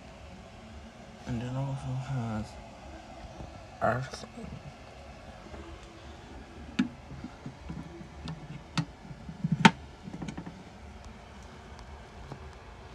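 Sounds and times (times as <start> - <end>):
rustling and knocking: 6.7 - 10.6.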